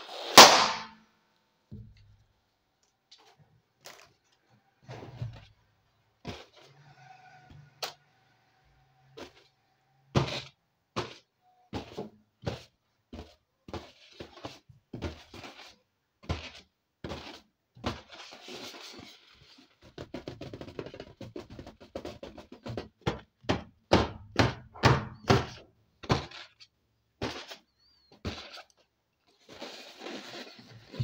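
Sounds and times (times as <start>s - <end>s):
hands patting a balloon: 10.2s - 26.6s
rubbing on a balloon: 11.8s - 22.9s, 27.2s - 31.0s.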